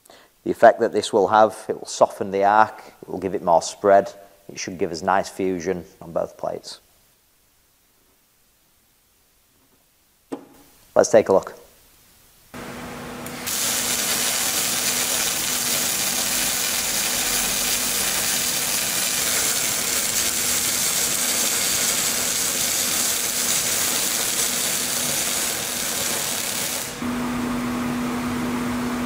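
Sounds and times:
welding arc hissing: 12.6 - 27.1.

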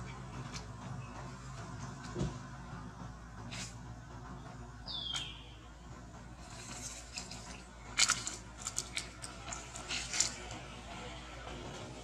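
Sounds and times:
monkeys scuffling on dry leaves: 6.4 - 10.8.

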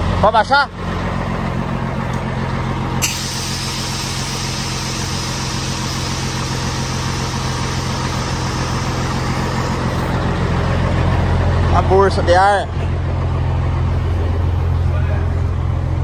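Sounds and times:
diesel engine idling: 0.0 - 16.0
compressed air hissing: 3.0 - 10.2.

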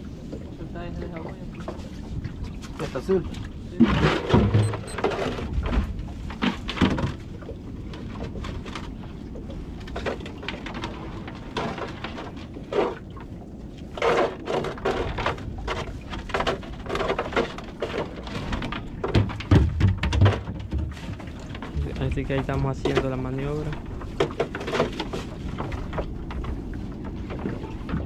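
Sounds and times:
water lapping against boat hull: 0.0 - 28.0
knocks and thuds on board: 18.5 - 23.2.

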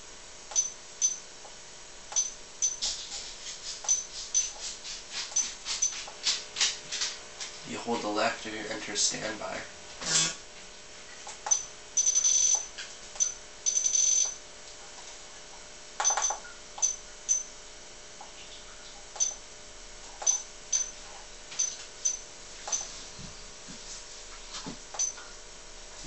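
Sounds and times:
power supply key beeps: 0.5 - 1.2, 2.1 - 2.8, 3.9 - 4.5, 11.4 - 14.4, 16.0 - 17.5, 19.2 - 19.4, 20.2 - 21.0, 21.6 - 22.9, 25.0 - 25.2.

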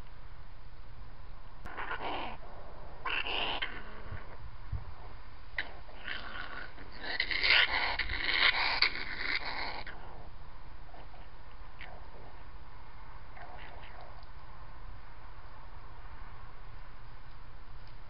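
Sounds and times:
fox raspy calls: 1.6 - 4.4, 5.0 - 12.5, 13.3 - 14.2.

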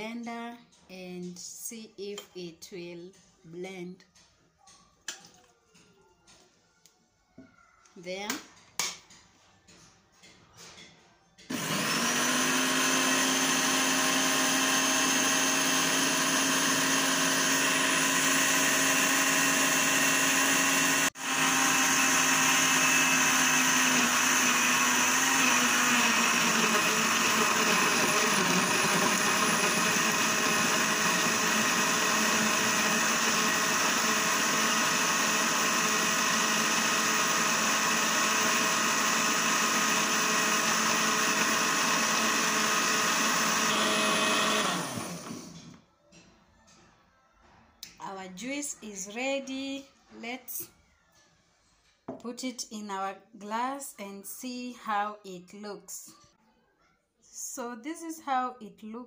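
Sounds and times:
blender running: 11.5 - 45.8.

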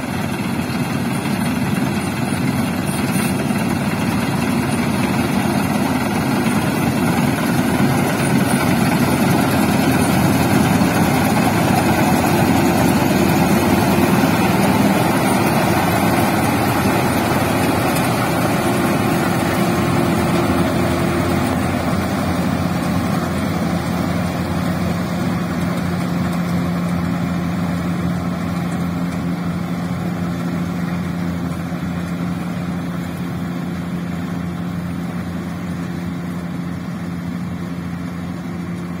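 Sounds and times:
combine harvester running: 0.0 - 39.0.

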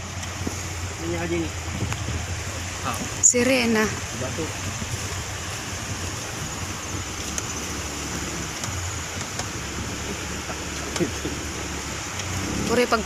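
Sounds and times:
river rushing over rocks: 0.0 - 13.0
wind rumble on microphone: 0.0 - 13.0.

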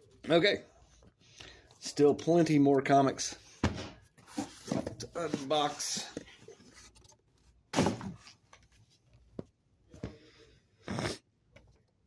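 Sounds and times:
paper shuffling: 4.2 - 7.5
comic books thudding: 7.7 - 8.4.

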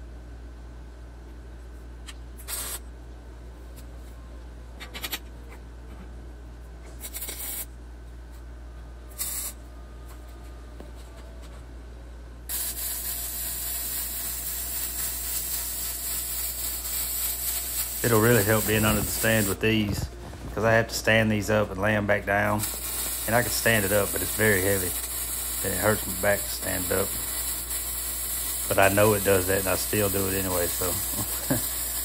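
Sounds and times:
welder arc hissing: 2.4 - 2.8, 7.0 - 7.7, 9.2 - 9.6, 12.5 - 32.0.

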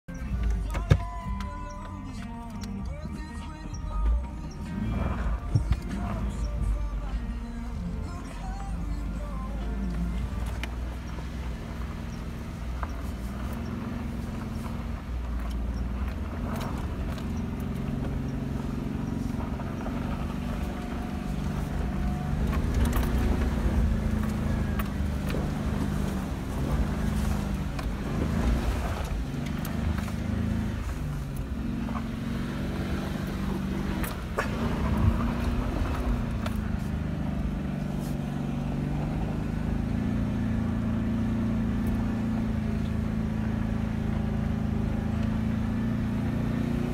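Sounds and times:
engine revving inside cab: 0.0 - 46.9.

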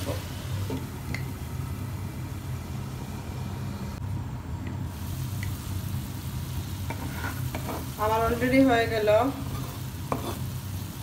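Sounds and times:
muffled fish frying sizzle: 4.8 - 11.0.

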